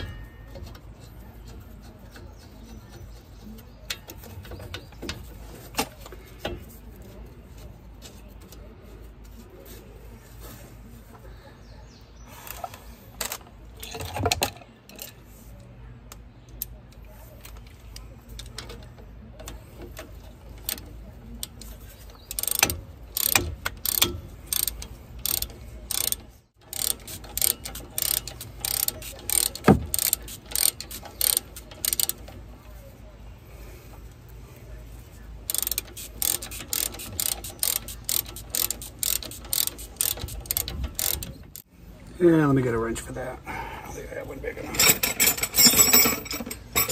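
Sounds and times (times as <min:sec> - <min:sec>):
ratchet wrench clicking: 0:19.4 - 0:32.4, 0:35.5 - 0:41.6
metal hand tools clinking: 0:44.7 - 0:46.9.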